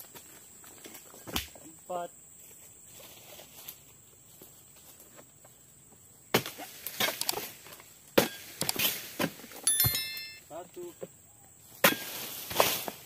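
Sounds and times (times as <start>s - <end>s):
faint insect buzz: 0.0s - 9.7s.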